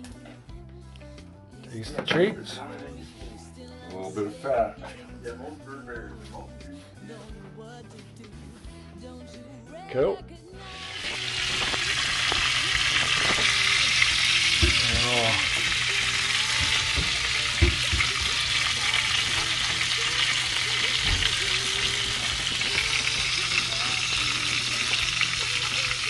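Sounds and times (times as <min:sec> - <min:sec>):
meat sizzling in a frying pan: 0:10.7 - 0:26.0.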